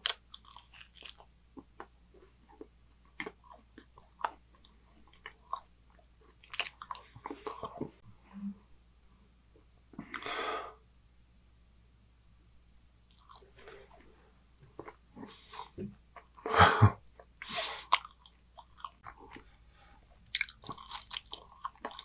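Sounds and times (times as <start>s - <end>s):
biting and chewing: 0.0s - 1.9s, 20.2s - 22.0s.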